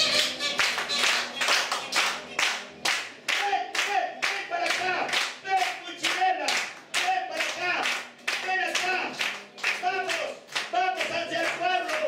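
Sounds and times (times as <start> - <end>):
rhythmic hand clapping: 0.0 - 12.0.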